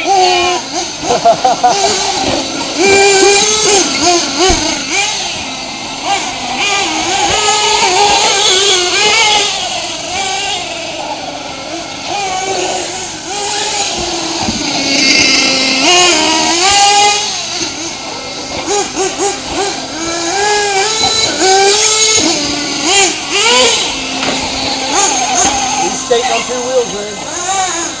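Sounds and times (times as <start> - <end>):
small nitro engines revving: 0.0 - 28.0.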